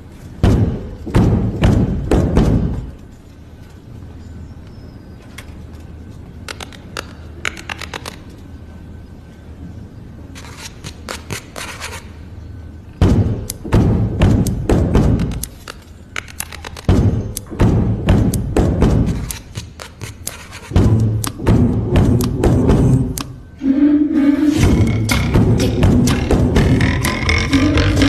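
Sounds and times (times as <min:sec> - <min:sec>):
deep drum hits: 0:00.4 - 0:03.0, 0:13.0 - 0:15.4, 0:16.9 - 0:19.3, 0:20.7 - 0:23.2, 0:24.6 - 0:28.0.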